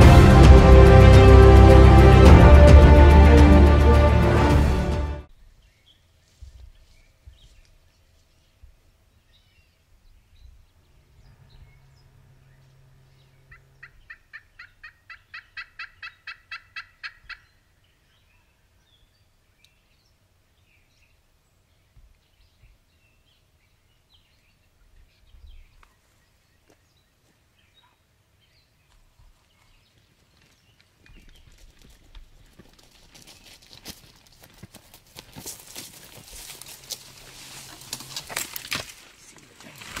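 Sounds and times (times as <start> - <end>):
faint low drone: 0.0 - 5.3, 10.6 - 14.1
wild turkey calling: 13.5 - 17.7.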